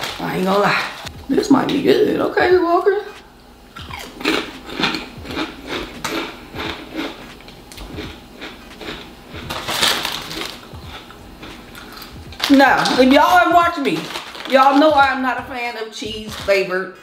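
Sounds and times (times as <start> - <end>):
crisps crunching while chewed: 3.8 - 15.1
crisp packet rustle: 9.5 - 10.7, 12.0 - 15.2.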